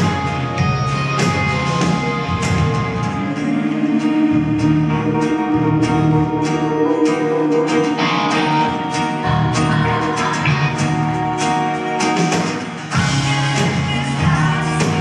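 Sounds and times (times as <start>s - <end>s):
country band playing: 0.0s - 15.0s.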